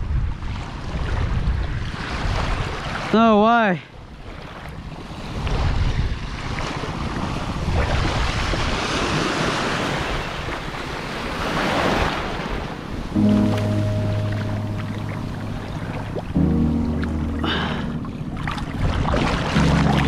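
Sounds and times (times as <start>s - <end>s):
wind buffeting microphone: 0.0s - 3.0s, 4.0s - 13.2s, 15.1s - 19.6s
small waves breaking: 0.4s - 20.0s
background music sustained notes: 13.2s - 20.0s.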